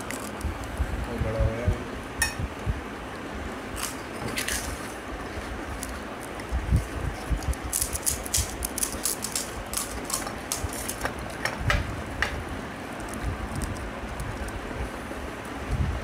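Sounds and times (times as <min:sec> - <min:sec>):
crisp shells crunching: 0:07.3 - 0:11.3.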